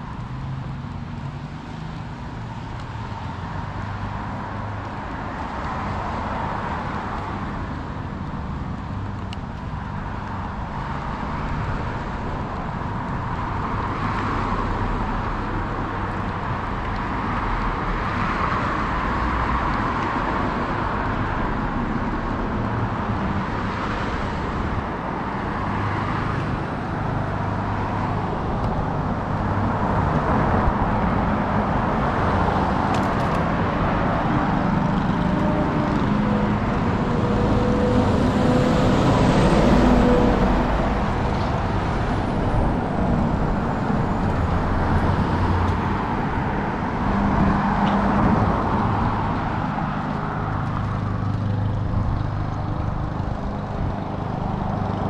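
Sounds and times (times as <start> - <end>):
cars passing on street: 0.0 - 55.0
box truck passing close: 27.1 - 55.0.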